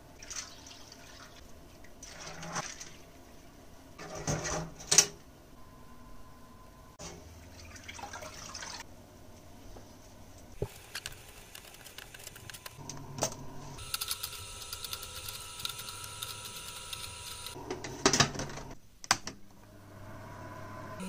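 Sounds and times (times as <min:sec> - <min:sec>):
machine hum: 0:10.7 - 0:18.8, 0:19.5 - 0:21.0.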